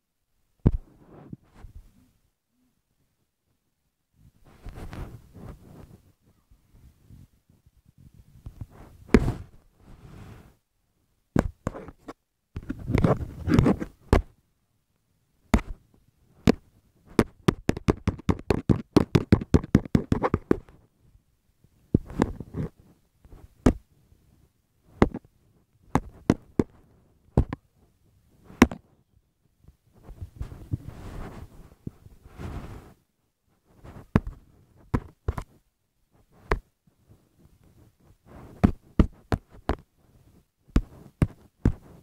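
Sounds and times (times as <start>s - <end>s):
rustling: 4.2s - 10.6s, 11.4s - 14.4s, 29.6s - 42.0s
sharp knocks and taps: 17.2s - 20.7s.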